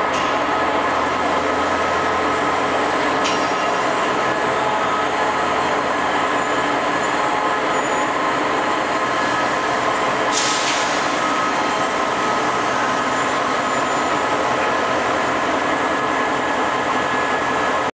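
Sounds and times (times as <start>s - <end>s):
train running noise: 0.0s - 17.9s
short sharp hiss: 10.3s - 11.1s.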